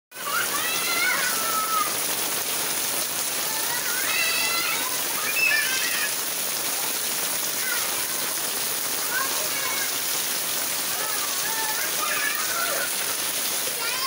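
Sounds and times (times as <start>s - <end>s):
rain on pavement: 0.1s - 14.0s
children calling out: 0.2s - 2.2s, 3.2s - 14.0s.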